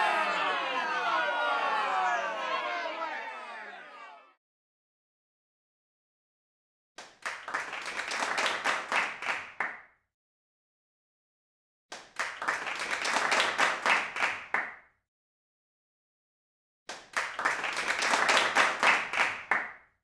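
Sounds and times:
crowd clapping: 0.0s - 4.3s, 7.0s - 9.8s, 11.9s - 14.8s, 16.9s - 19.8s.

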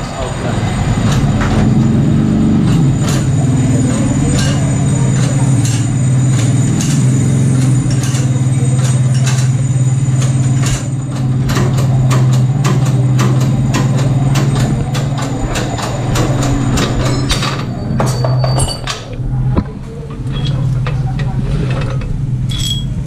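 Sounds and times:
machine humming: 0.0s - 23.0s
sharp clicks and knocks: 0.9s - 23.0s.

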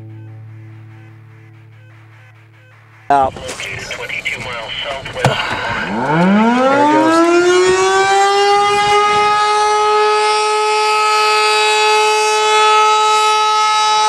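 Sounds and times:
warning siren wailing: 4.3s - 14.0s.

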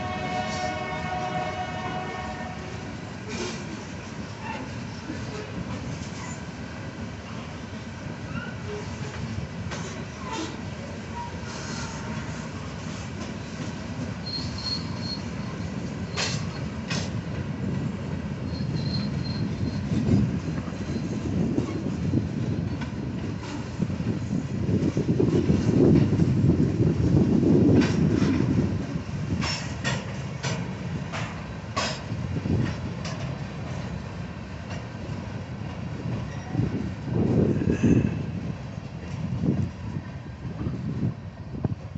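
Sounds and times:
freight train rumbling past: 0.0s - 41.9s
sharp train clacks: 8.3s - 40.8s
high wheel squeal: 14.2s - 16.7s, 18.4s - 21.2s.

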